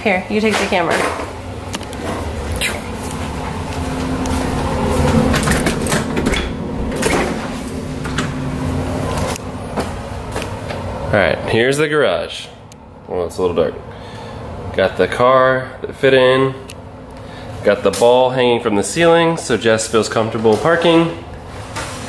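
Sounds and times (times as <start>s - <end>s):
steady low hum: 0.0s - 22.0s
door opening: 0.8s - 10.0s.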